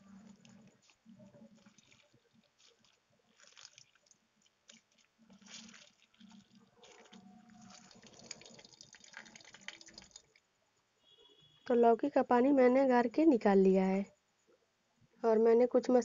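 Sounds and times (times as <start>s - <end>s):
hands squeezing water: 0.0s - 10.4s
water trickling into plate: 1.4s - 10.4s.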